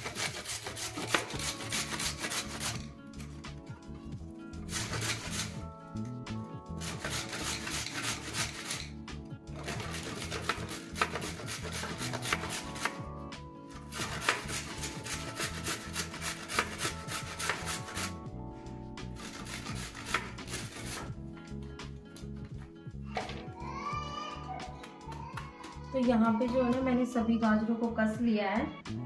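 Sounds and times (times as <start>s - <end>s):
carrot grated on metal grater: 0.0s - 2.8s, 4.7s - 5.6s, 6.8s - 8.9s, 9.6s - 13.0s, 13.8s - 18.1s, 19.2s - 21.1s
background music: 0.0s - 29.0s.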